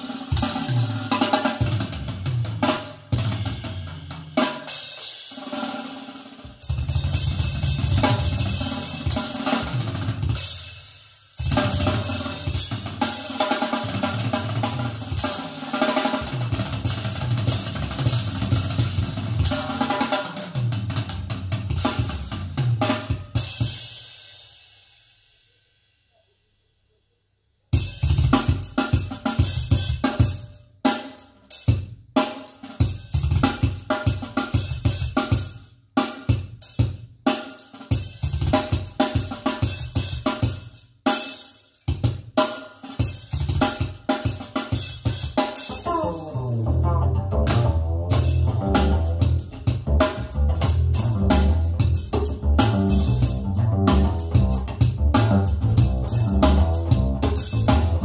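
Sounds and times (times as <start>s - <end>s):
drum kit playing: 0.0s - 24.8s, 27.8s - 58.0s
bass line: 45.7s - 58.0s.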